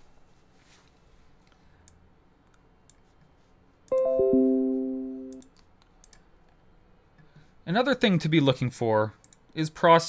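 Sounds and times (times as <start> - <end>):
computer chime: 3.9 - 5.4
faint clicks: 5.3 - 6.6, 9.2 - 9.5.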